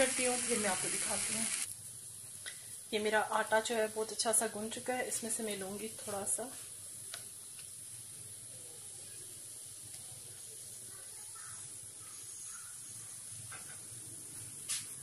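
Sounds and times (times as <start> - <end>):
background hiss: 0.0 - 15.0.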